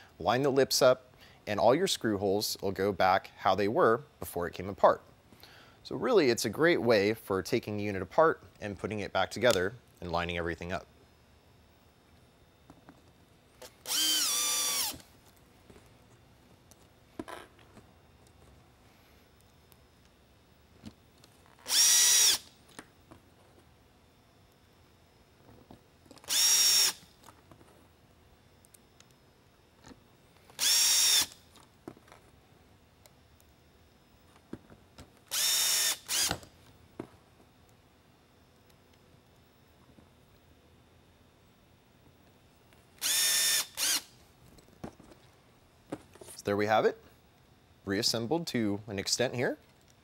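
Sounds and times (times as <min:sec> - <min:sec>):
cordless drill whining: 0:13.6 - 0:15.1, 0:21.6 - 0:22.5, 0:26.2 - 0:27.0, 0:30.6 - 0:31.4, 0:35.3 - 0:36.4, 0:43.0 - 0:44.1.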